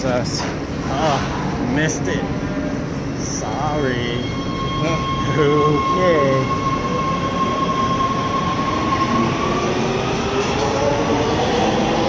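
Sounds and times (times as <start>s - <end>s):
subway train rumble: 0.0s - 12.0s
steady high tone: 3.2s - 12.0s.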